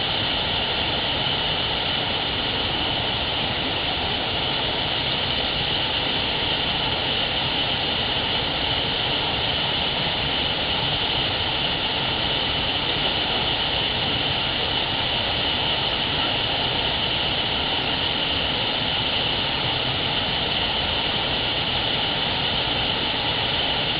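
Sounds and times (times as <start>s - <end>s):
water rushing over rocks: 0.0s - 23.9s.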